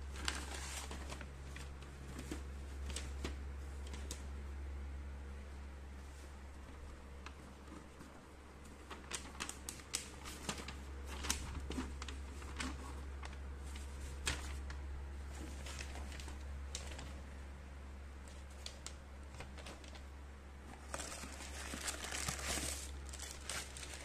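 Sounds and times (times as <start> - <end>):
paper rustling and crackling: 0.0 - 4.3, 6.0 - 17.4, 18.2 - 24.0.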